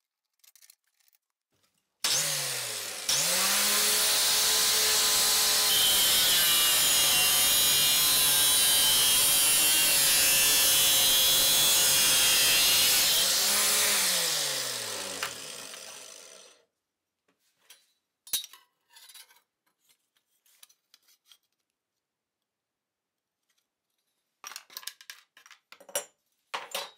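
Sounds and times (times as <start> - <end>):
grinder cutting steel: 2.0 - 16.6
grinder disc winding down: 12.8 - 16.6.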